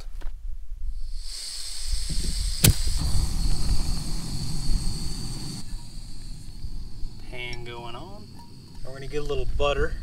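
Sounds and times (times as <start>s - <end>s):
gas hissing from burner: 1.0s - 10.0s
burner flame rushing: 1.1s - 7.4s.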